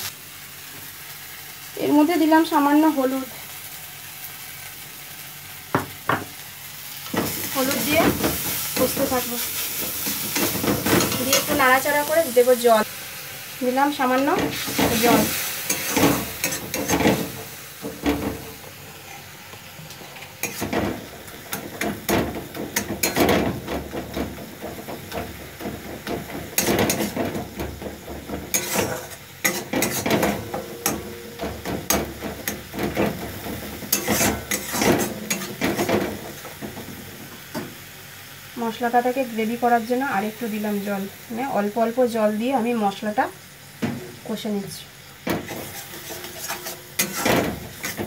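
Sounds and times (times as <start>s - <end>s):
masala sizzling: 0.0s - 48.0s
metal spatula scraping pan: 14.1s - 17.4s, 25.7s - 36.6s, 45.4s - 48.0s.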